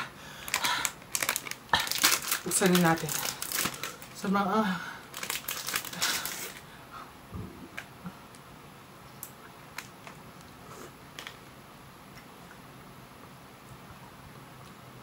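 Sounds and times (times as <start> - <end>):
plastic wrapper crinkling: 0.4 - 4.3, 5.1 - 6.6.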